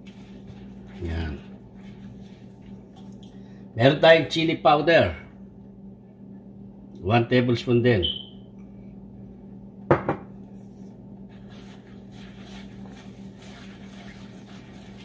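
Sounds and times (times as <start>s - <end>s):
kitchenware knock: 9.9s - 10.3s
spatula stirring sauce in wok: 11.5s - 15.0s.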